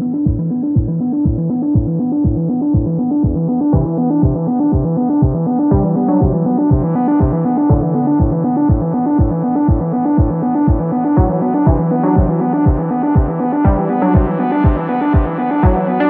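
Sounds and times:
electronic music with synth chords: 0.0 - 16.0.

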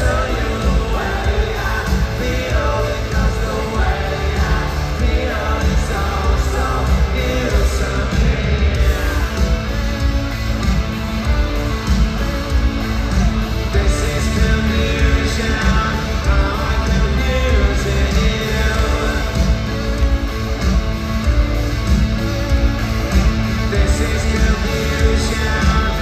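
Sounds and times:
person singing: 0.0 - 10.2, 13.5 - 20.6, 23.1 - 26.0
drums: 0.0 - 26.0
rock band playing: 0.0 - 26.0
strong bass: 0.0 - 26.0.

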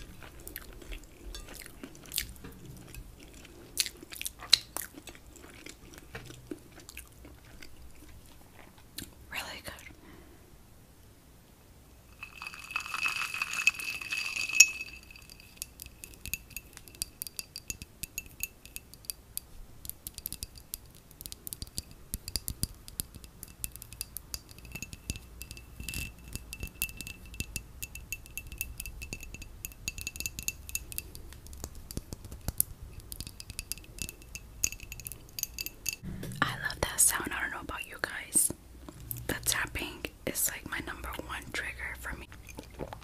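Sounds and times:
ice cubes clinking in glass: 12.2 - 19.1, 32.9 - 37.0
fizzing hiss and rattle: 12.2 - 19.4.

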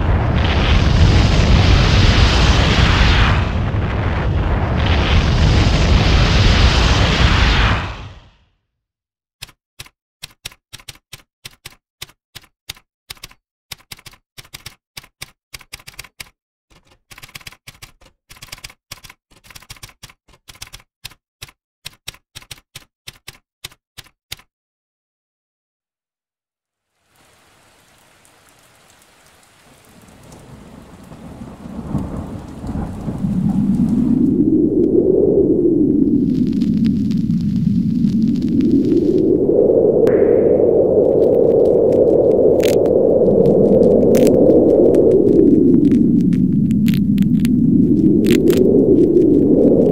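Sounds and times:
low rumbling noise: 0.0 - 8.2, 30.4 - 49.9
typewriter keys clacking: 9.4 - 24.5.

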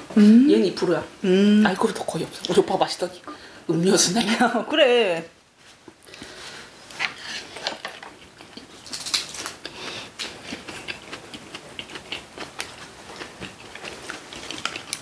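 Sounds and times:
chewing with small crackles: 5.8 - 15.0.

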